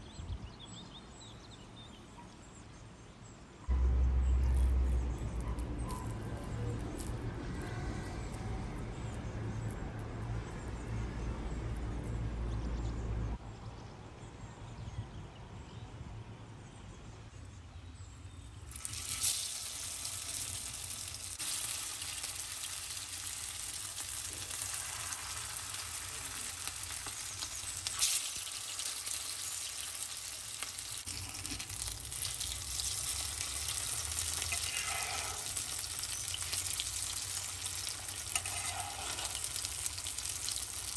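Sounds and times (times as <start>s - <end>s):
patties sizzling in oil: 4.5s - 10.8s, 18.6s - 40.9s.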